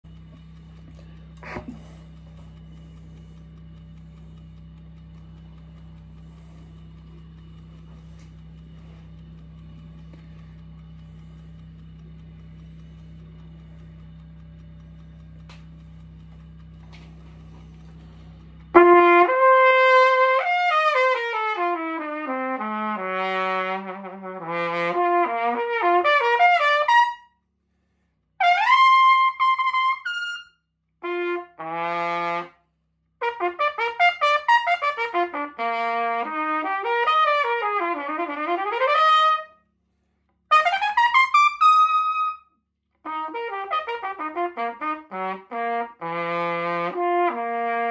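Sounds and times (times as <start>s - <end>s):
pressure washer humming: 0.1s - 22.7s
trumpet playing: 18.7s - 27.3s, 28.4s - 32.6s, 33.2s - 39.6s, 40.5s - 47.9s.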